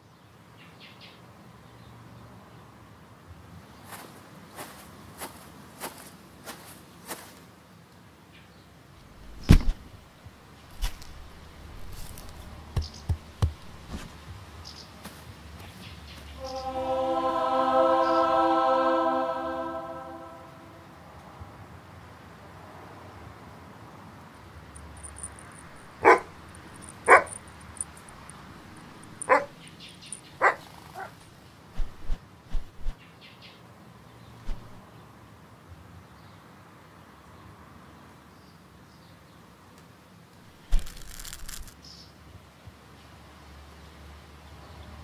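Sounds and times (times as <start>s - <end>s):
rubber boot thudding on grass: 9.2s - 10.0s, 10.7s - 14.4s
dog barking: 26.0s - 26.4s, 27.0s - 27.4s, 29.2s - 29.5s, 30.4s - 31.2s.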